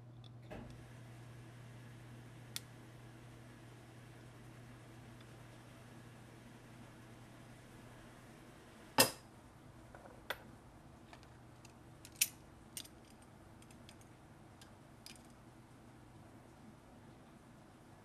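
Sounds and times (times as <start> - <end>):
metal pieces clacking on plastic board: 11.2 - 14.0.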